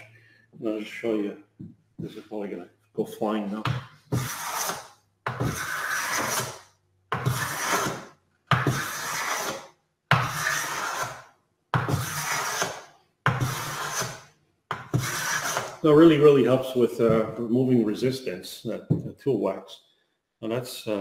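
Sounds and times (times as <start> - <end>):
hand plane shaving wood: 4.1 - 6.6, 7.2 - 11.2, 11.9 - 14.2, 14.9 - 15.8.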